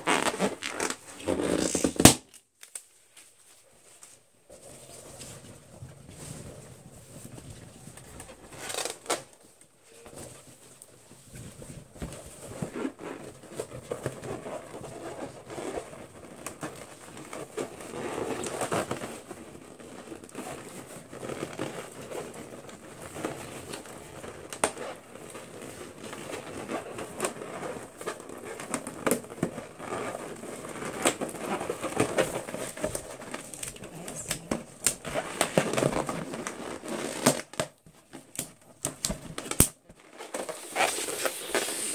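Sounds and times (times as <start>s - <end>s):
fingernails scratching balloon: 0.0s - 2.1s, 40.4s - 41.9s
rubber balloons squeaking: 0.0s - 2.2s, 23.4s - 37.6s.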